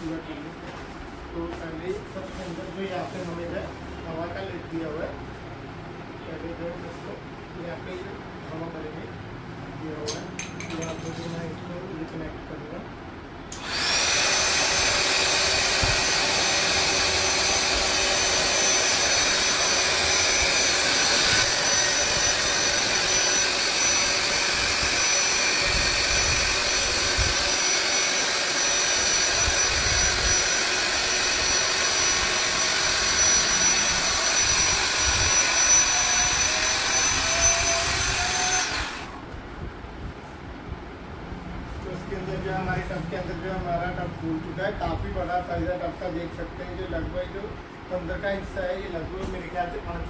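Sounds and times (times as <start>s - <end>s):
electric air pump whining: 13.5s - 39.5s.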